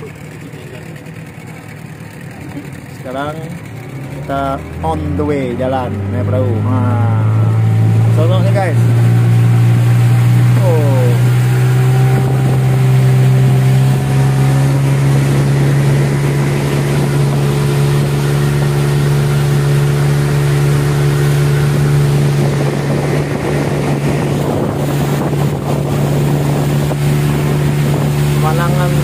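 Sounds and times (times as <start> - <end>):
small boat motor running: 0.0 - 29.0
water rushing past hull: 0.0 - 29.0
wind on microphone: 6.8 - 29.0.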